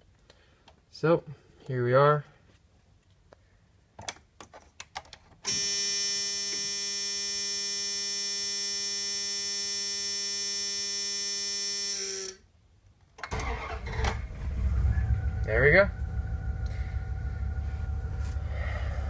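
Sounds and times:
dashboard warning buzzer: 5.5s - 12.2s.

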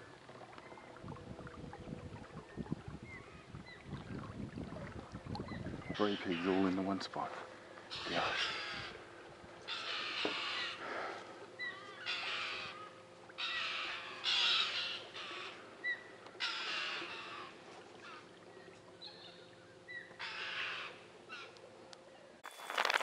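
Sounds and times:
crows cawing: 6.0s - 6.8s, 7.9s - 15.7s, 16.4s - 18.3s, 20.1s - 21.6s.

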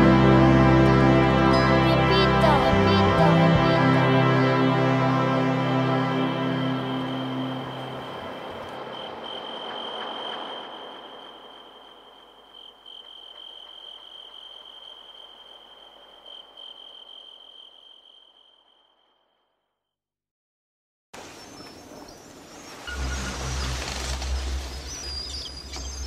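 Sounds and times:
high cricket-like trill: 7.1s - 19.0s.

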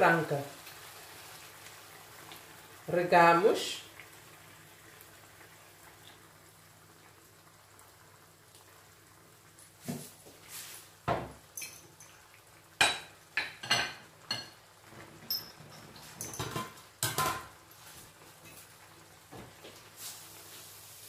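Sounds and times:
glass and metal kitchenware clinking: 11.6s - 12.2s, 12.8s - 14.6s, 15.2s - 17.5s.

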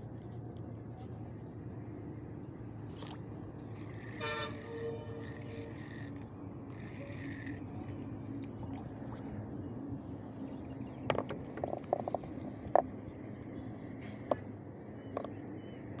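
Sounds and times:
spinning reel winding: 3.8s - 8.0s
sharp clicks and knocks: 11.0s - 12.9s.

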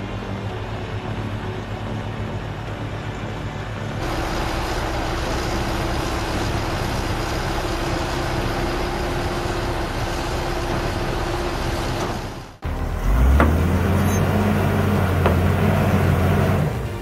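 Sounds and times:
diesel engines running: 0.0s - 17.0s.

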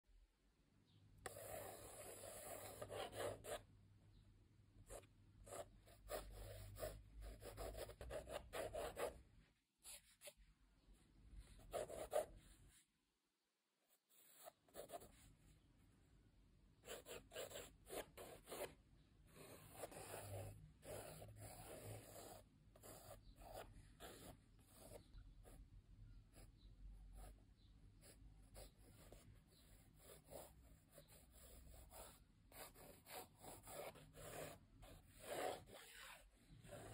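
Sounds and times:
pencil scratching on paper: 1.2s - 3.6s, 4.9s - 9.2s, 9.8s - 10.4s, 11.5s - 12.8s, 14.0s - 15.3s, 16.8s - 25.6s, 28.0s - 36.9s.

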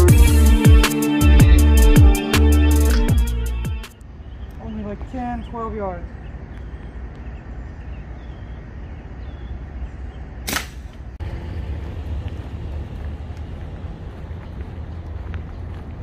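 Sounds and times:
low outdoor rumble: 3.9s - 16.0s
air rifle shot crack: 10.4s - 11.1s.

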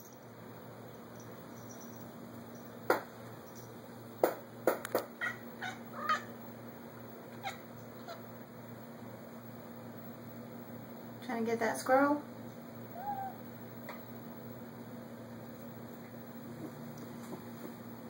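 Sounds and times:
cat chattering and chirping: 5.2s - 6.4s, 7.3s - 8.3s, 12.9s - 13.4s.

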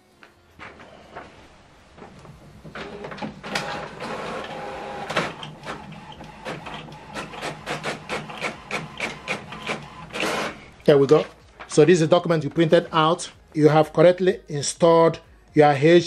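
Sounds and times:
printer motors whirring: 0.6s - 11.3s
printer clicking: 2.0s - 11.8s.

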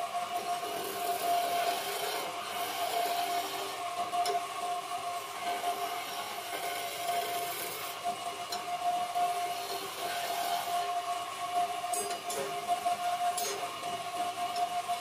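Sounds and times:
wood lathe whining: 0.0s - 15.0s
turning tool scraping wood: 0.4s - 3.8s, 5.2s - 8.0s, 9.2s - 11.0s.

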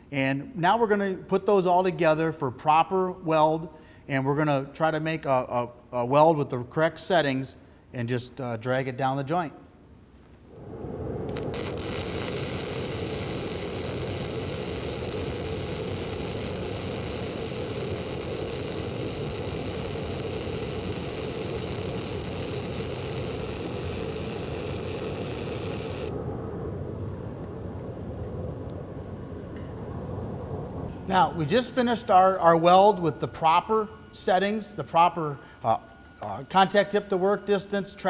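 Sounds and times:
low steady noise: 0.0s - 38.0s
welding arc crackling: 11.2s - 26.2s.

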